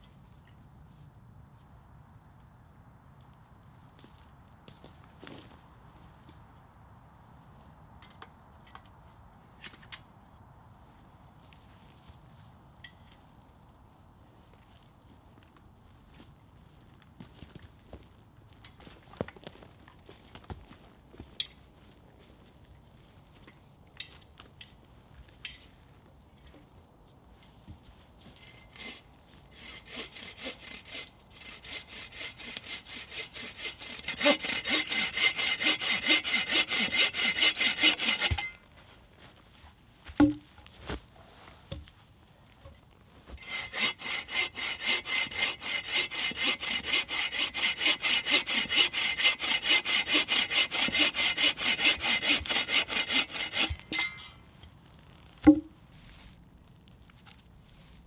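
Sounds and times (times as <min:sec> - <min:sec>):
saw cutting wood: 0:28.4 - 0:38.6, 0:43.4 - 0:54.2
wooden knocks: 0:55.5 - 0:55.7.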